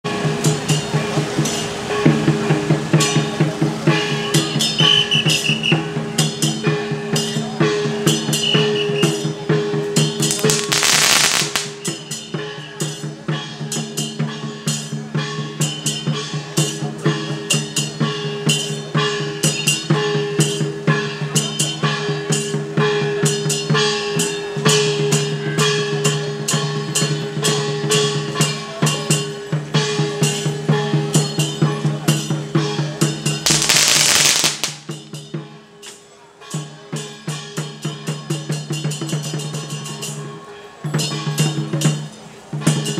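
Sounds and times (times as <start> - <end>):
drum and percussion beat: 0.0 - 42.9
sustained melody: 0.1 - 38.2
loud crackle: 10.3 - 11.8, 33.5 - 34.9.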